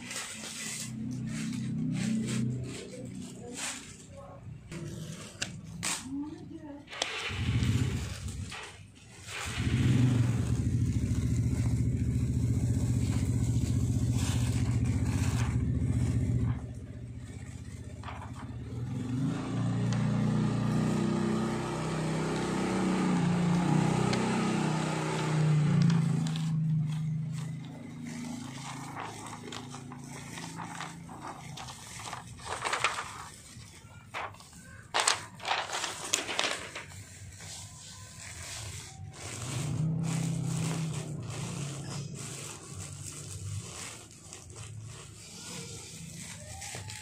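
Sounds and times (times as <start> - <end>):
engine running: 7.0 - 8.7, 9.3 - 46.4
engine with wavering pitch: 7.3 - 8.6, 9.4 - 47.0
film peeling off fabric crackle: 25.7 - 47.0.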